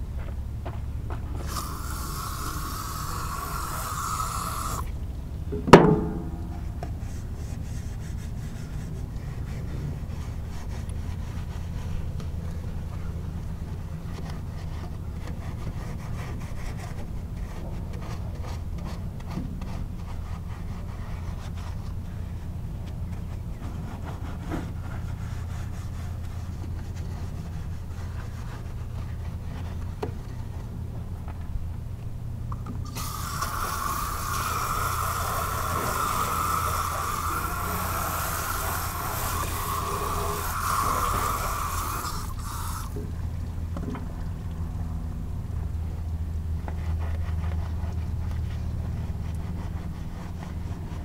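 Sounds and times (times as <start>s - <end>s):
steady low hum: 0.0s - 51.0s
rough scrape: 1.3s - 5.0s, 32.8s - 43.0s
sharp metallic clang: 5.5s - 6.8s.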